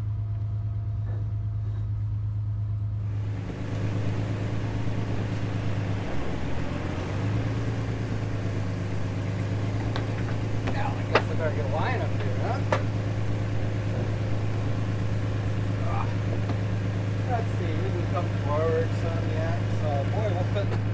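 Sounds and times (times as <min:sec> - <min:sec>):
boat engine idling: 0:00.0 - 0:20.9.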